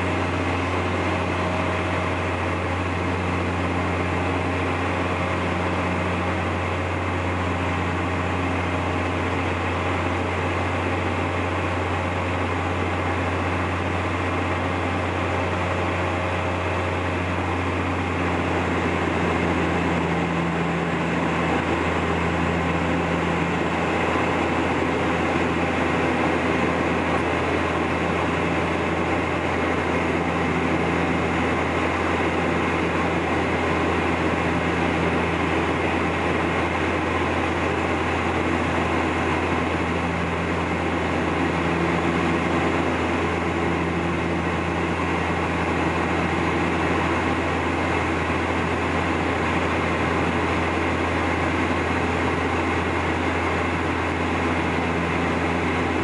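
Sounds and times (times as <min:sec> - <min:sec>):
deep propeller hum: 0:00.0 - 0:56.0
higher propeller tone: 0:00.0 - 0:56.0
rush of air and engine noise: 0:00.0 - 0:56.0.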